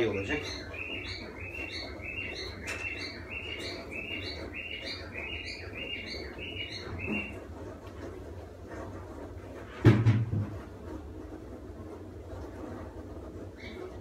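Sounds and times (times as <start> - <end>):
bird chirping: 0.0 - 7.4, 13.6 - 13.9.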